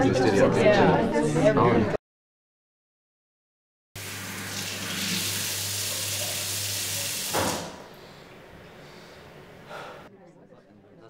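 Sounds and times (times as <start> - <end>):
water splashing on face: 4.0 - 7.9
tap running into sink: 4.3 - 7.9.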